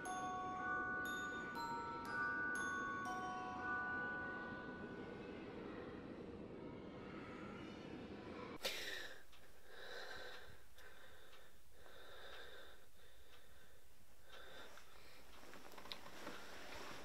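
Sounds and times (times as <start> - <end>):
person breathing: 8.6 - 17.0.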